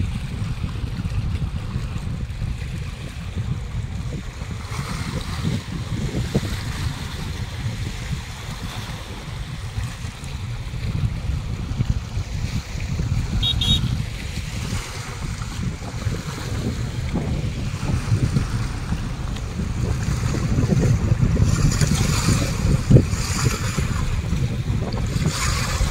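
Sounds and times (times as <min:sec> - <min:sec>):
waves lapping against rocks: 0:00.0 - 0:25.9
wind buffeting microphone: 0:00.0 - 0:25.9.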